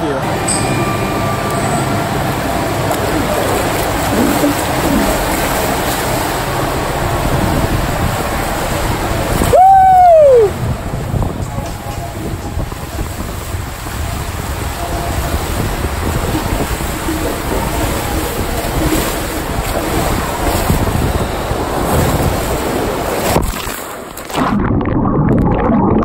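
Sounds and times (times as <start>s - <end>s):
water rushing down water slide: 0.2s - 26.0s
wind noise on microphone: 1.2s - 26.0s
muffled underwater sound: 2.2s - 23.1s
splash into pool: 23.2s - 24.8s.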